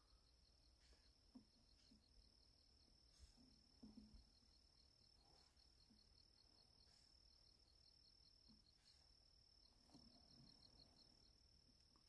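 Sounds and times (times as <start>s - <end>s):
insect high continuous trill: 0.0s - 12.0s.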